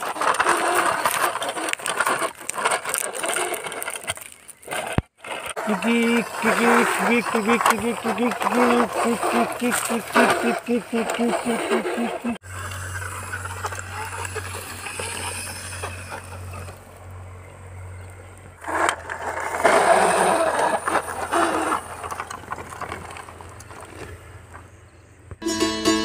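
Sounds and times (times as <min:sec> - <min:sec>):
toy truck motor hum with rattling: 0:00.0 - 0:24.6.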